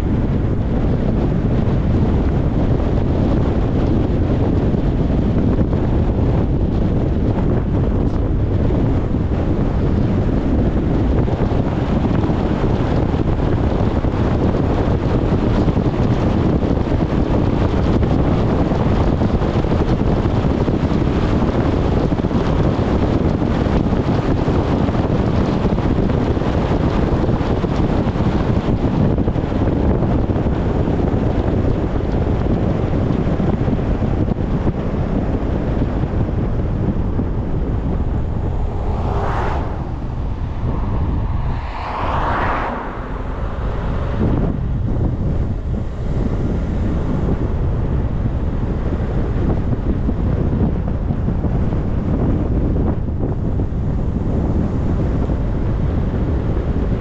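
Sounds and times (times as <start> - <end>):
bus road noise: 0.0 - 57.0
wind buffeting microphone: 0.0 - 57.0
brief whooshes: 37.8 - 44.7.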